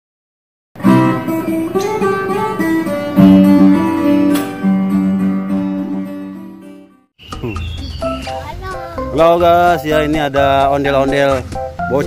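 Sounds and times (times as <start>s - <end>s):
strummed guitar music: 0.8s - 7.0s.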